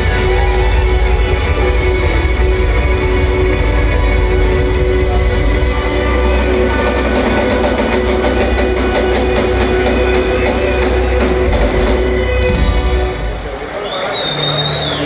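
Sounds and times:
loud live band music: 0.0 - 15.0.

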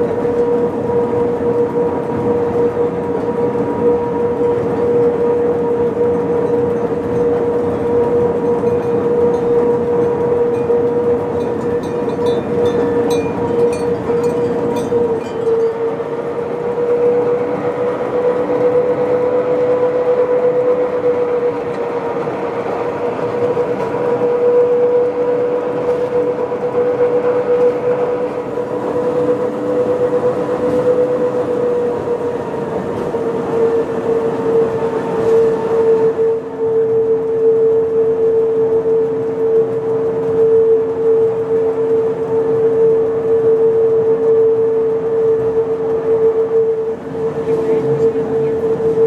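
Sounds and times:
railcar drive whine: 0.0 - 49.0
train running noise: 0.0 - 49.0.

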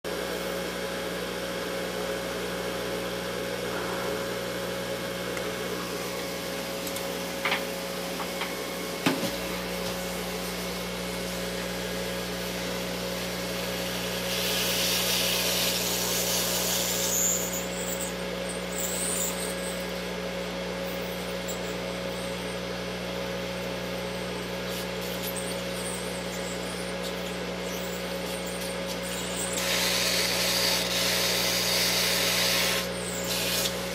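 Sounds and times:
motor hum: 0.1 - 33.9
hot-air gun hissing: 12.4 - 17.7, 28.9 - 33.9.

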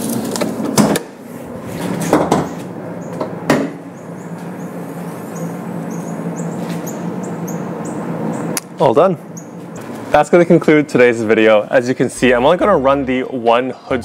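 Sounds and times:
steady low hum: 1.0 - 14.0.

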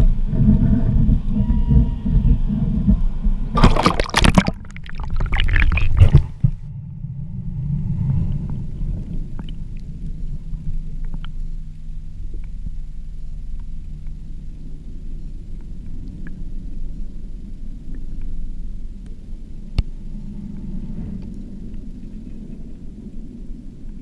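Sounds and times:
muffled underwater rumble: 0.0 - 24.0
water splashing and churning: 3.6 - 6.4.

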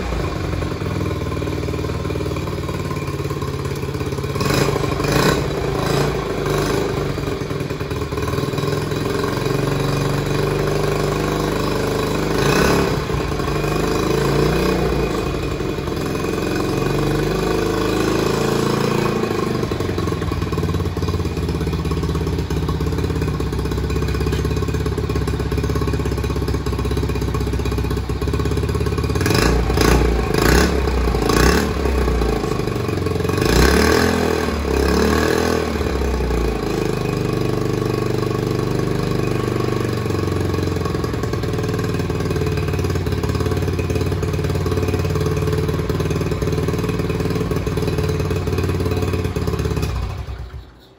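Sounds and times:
motorcycle engine idling and revving: 0.0 - 50.9.

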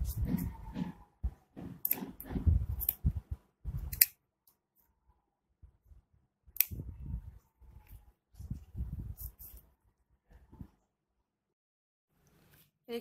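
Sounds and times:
scissors snipping cord: 1.8 - 3.1, 3.9 - 4.6, 6.6 - 6.8.

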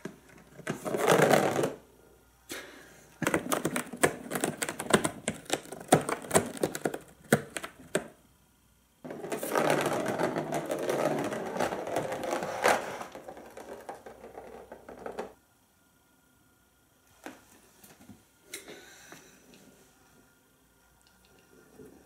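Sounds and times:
cat toy ball rasping rumble: 0.5 - 1.9, 9.0 - 15.4.

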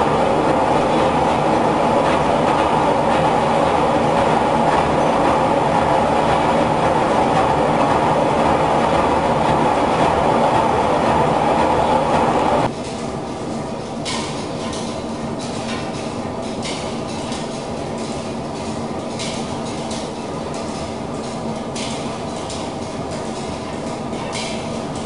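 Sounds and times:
mill machinery clattering: 0.0 - 25.0.

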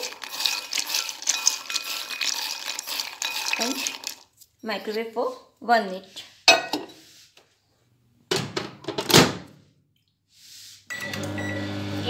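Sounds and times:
microwave oven humming: 10.9 - 12.0.

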